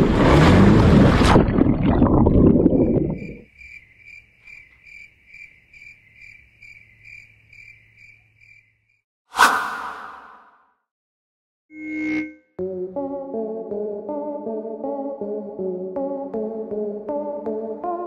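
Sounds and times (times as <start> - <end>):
motorcycle splashing into water: 0.0 - 2.1.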